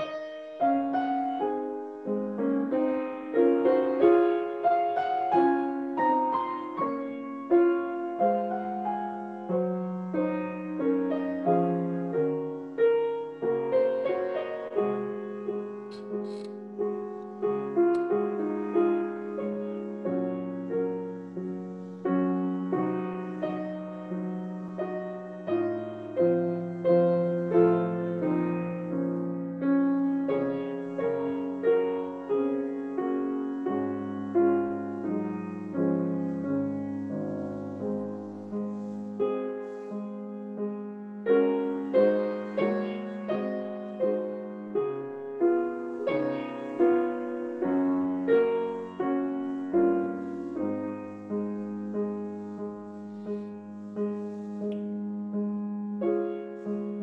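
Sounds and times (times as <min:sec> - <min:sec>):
slow solo piano: 0:00.0 - 0:57.0.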